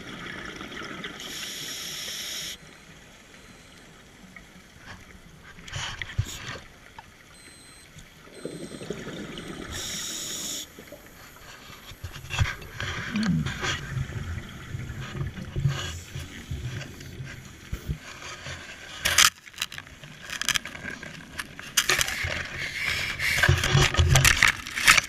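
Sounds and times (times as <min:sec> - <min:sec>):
underwater regulator breathing bubbles: 0:08.4 - 0:13.9.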